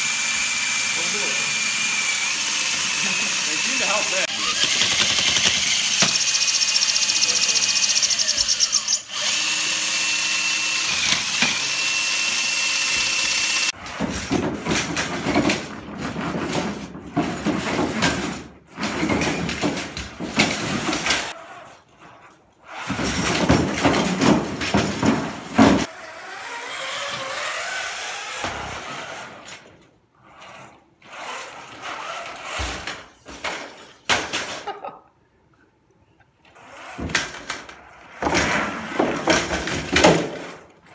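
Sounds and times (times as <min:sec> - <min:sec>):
wheels knocking over plywood: 0:13.8 - 0:21.4, 0:22.8 - 0:25.9, 0:37.0 - 0:40.8.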